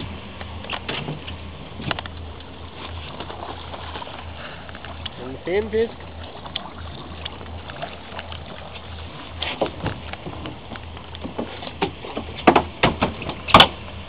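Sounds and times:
boat engine idling: 0.0s - 14.0s
knocks and clatter against boat: 0.0s - 14.0s.

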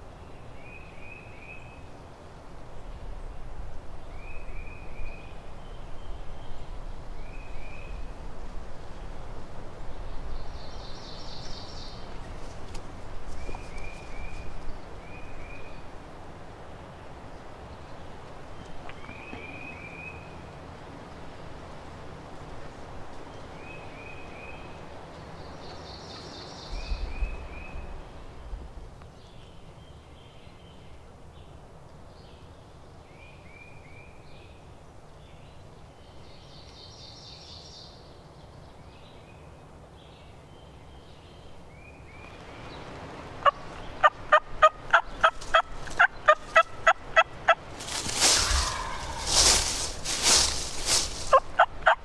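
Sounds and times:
songbirds chipping and trilling: 8.8s - 52.0s
turkey gobble: 43.4s - 47.6s, 48.2s - 49.6s, 51.3s - 52.0s
turkey yelping: 43.4s - 47.6s, 48.2s - 49.6s, 51.2s - 52.0s.

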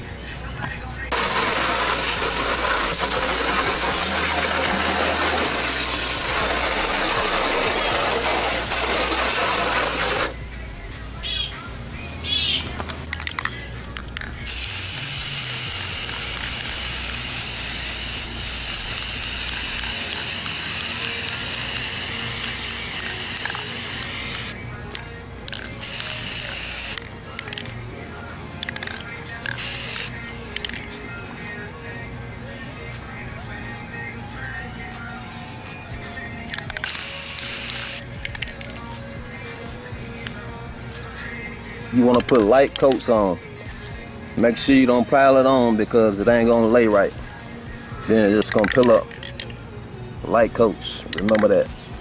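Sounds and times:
aerosol spray can hissing: 1.1s - 10.4s, 14.5s - 24.6s, 25.8s - 27.0s, 29.5s - 30.2s, 36.8s - 38.1s
hose water spraying on plastic: 1.1s - 10.4s, 14.5s - 24.6s, 25.8s - 27.0s, 29.6s - 30.1s, 36.8s - 38.0s.

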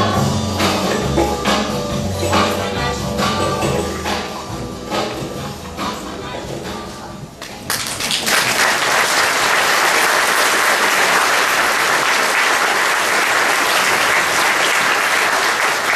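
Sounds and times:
audience applauding: 7.7s - 15.9s.

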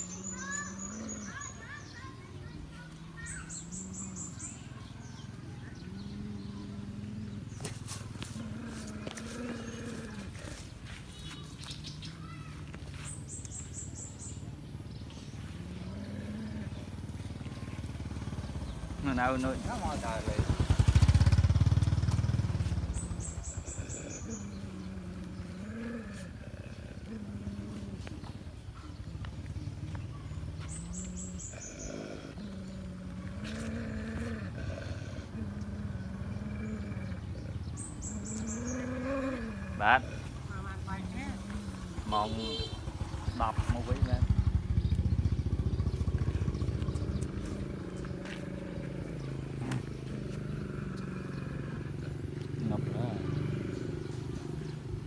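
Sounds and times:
bird chirping: 0.0s - 21.6s, 22.6s - 55.0s
dogs growling: 0.0s - 55.0s
small motorbike engine: 0.0s - 55.0s.

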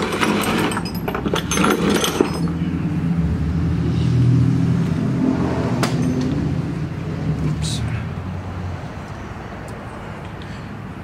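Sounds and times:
metal tools clinking: 0.0s - 2.6s.

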